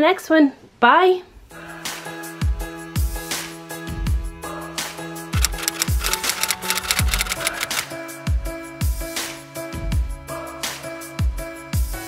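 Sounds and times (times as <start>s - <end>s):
keyboard typing clicks: 5.4s - 7.8s.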